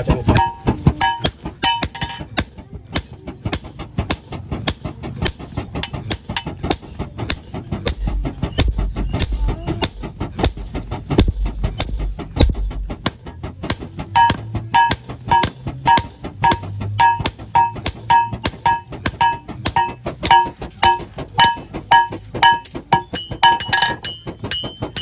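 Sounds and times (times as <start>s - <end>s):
anvil ringing: 0.3s - 2.4s, 14.0s - 25.0s
hammer blows on anvil: 0.3s - 2.4s, 14.1s - 25.0s.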